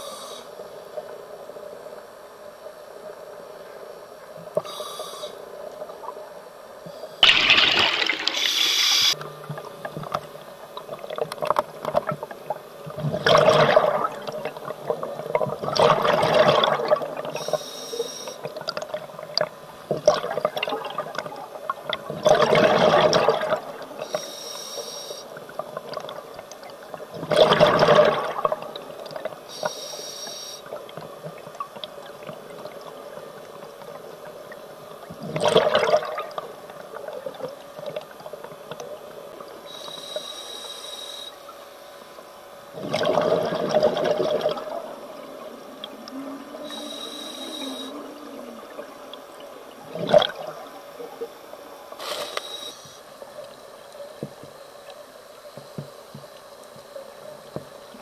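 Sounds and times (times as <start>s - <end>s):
hissing regulator inhalations: 4.6s - 5.4s, 8.2s - 9.2s, 17.3s - 18.5s, 24.0s - 25.4s, 29.5s - 30.8s, 39.7s - 41.4s, 46.6s - 48.1s, 52.0s - 53.1s
bubbling exhalations underwater: 7.2s - 8.6s, 12.9s - 17.4s, 19.9s - 23.8s, 27.1s - 28.9s, 35.2s - 36.4s, 42.7s - 46.9s, 49.8s - 50.8s.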